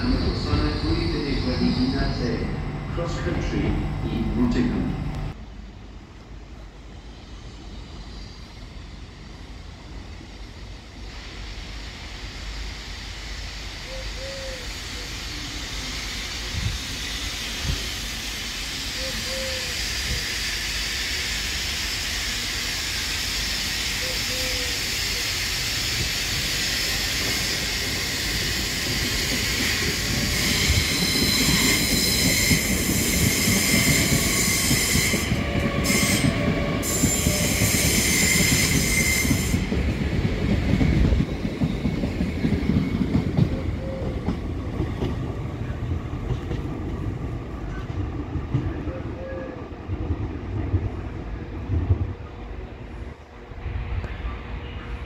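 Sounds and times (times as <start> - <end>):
train wheels squealing: 0.0 - 2.5, 13.5 - 44.4
train wheels rumbling on rails: 0.0 - 55.0.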